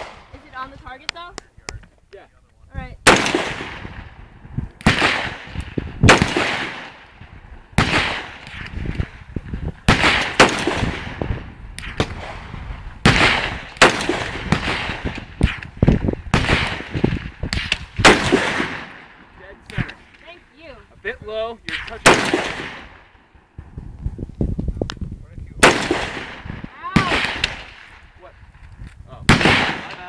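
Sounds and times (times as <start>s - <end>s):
rifle shots with echo: 0.0s - 0.4s, 3.0s - 4.2s, 4.8s - 9.1s, 9.8s - 20.4s, 21.7s - 23.4s, 25.6s - 28.2s, 29.2s - 30.0s.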